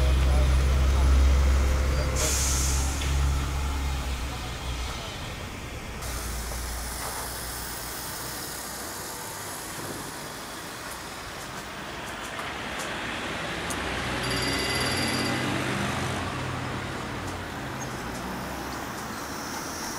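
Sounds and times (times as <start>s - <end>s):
large vehicle engine idling: 0.0s - 12.0s
air brake hiss: 2.1s - 3.9s, 6.0s - 10.6s.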